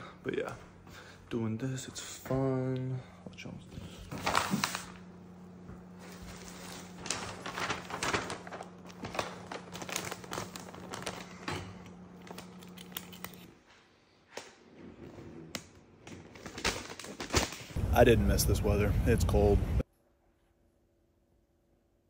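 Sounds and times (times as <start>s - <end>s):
wrapping paper rustling: 4.1s - 5.1s, 5.8s - 13.5s, 16.1s - 17.8s
steady low hum: 17.7s - 19.8s.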